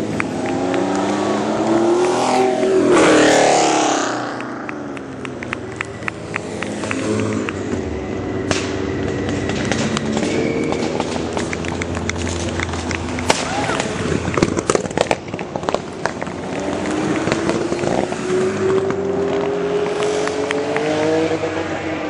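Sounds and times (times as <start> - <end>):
race car engine approaching: 0.0 - 22.0
race car passing by: 0.0 - 22.0
sharp ticks: 4.2 - 7.7.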